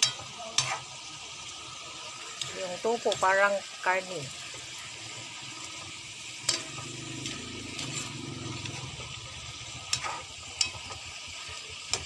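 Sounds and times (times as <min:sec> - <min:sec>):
food sizzling in a wok: 0:00.0 - 0:12.0
metal ladle stirring: 0:04.6 - 0:09.1, 0:09.8 - 0:12.0
ladle clacking against pan: 0:09.9 - 0:11.1.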